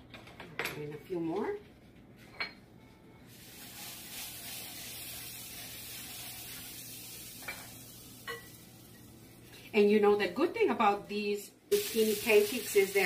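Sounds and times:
butter sizzling on griddle: 3.3 - 9.5, 11.7 - 13.0.

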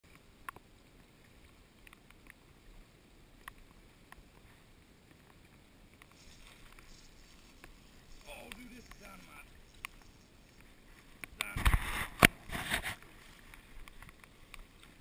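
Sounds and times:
light ticks: 0.1 - 11.6, 13.0 - 15.0
faint water hiss: 0.1 - 15.0.

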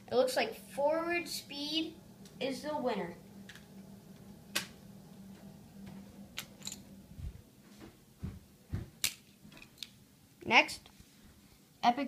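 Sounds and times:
faint steady hum: 0.0 - 12.0
low thumps: 3.1 - 9.0.

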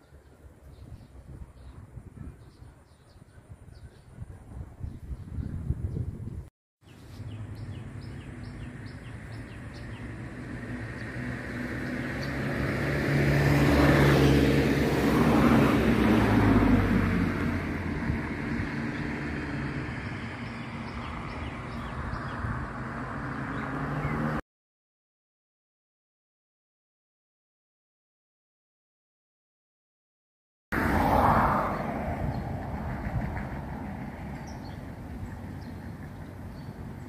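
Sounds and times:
birds chirping: 0.0 - 6.3, 6.9 - 12.9, 18.8 - 24.4, 34.2 - 37.0
vehicle passing by: 7.1 - 24.4, 30.8 - 37.0
low engine hum: 30.8 - 37.0.

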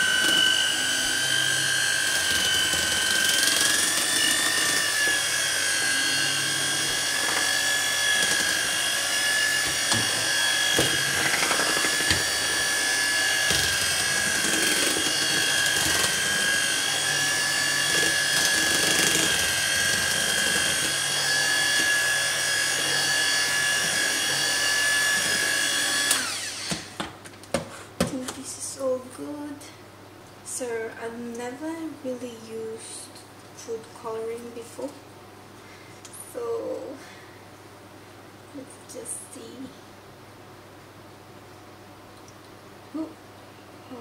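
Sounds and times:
electric hand mixer whining: 0.0 - 27.0
mixer knocking against bowl: 9.6 - 17.0.

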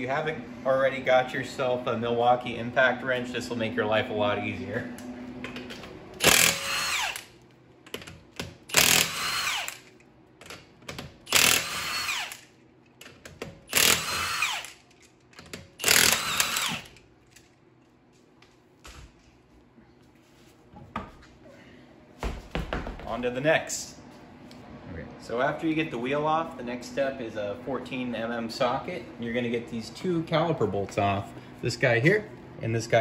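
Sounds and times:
impact wrench bursts: 6.2 - 7.3, 8.4 - 10.0, 11.0 - 12.5, 13.4 - 14.8, 15.4 - 17.0.

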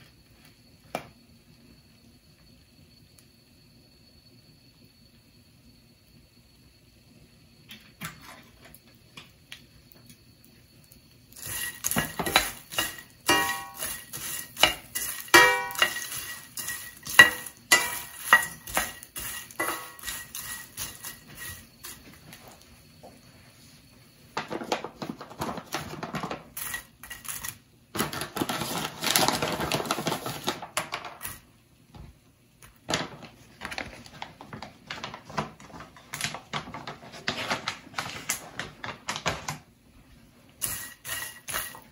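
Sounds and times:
dried shrimp scraping in metal pan: 11.4 - 22.0, 40.6 - 41.9
pan ringing: 12.1 - 21.2.

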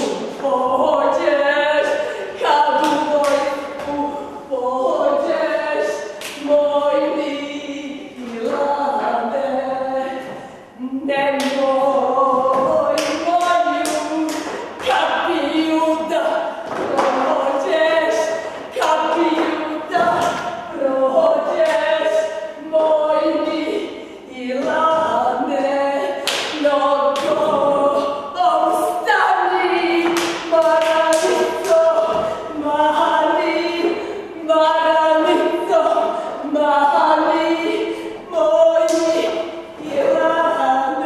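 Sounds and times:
women singing unaccompanied: 0.0 - 41.0.

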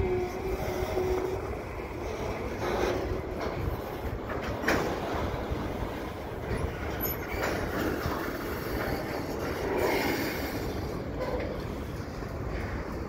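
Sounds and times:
train wheels rumbling: 0.0 - 13.0.

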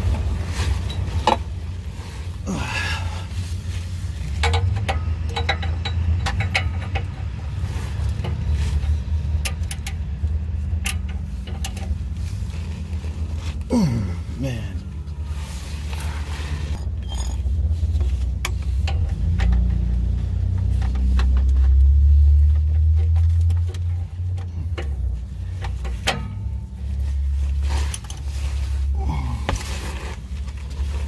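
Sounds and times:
ratchet clicks and metal clinks: 4.3 - 7.3.

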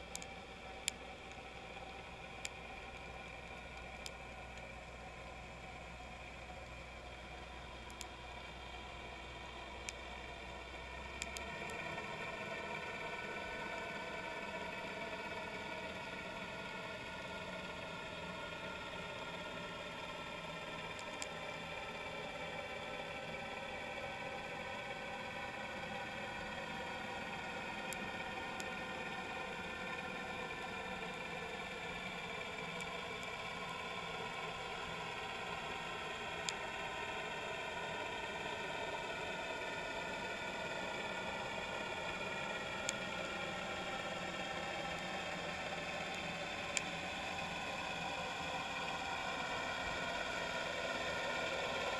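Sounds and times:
faint sharp clicks: 0.0 - 4.7, 11.1 - 11.9, 20.7 - 21.7, 36.3 - 36.7, 41.7 - 47.3
mechanical drone underwater: 0.0 - 51.9.

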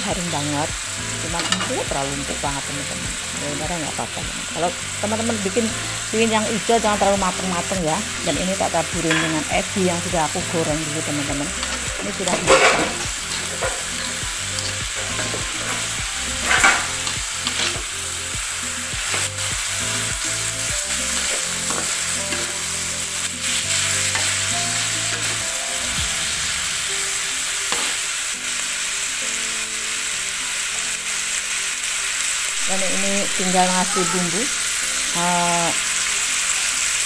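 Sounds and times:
food sizzling in hot oil: 0.0 - 37.0
metal spatula scraping a wok: 9.1 - 9.6, 10.5 - 26.8.

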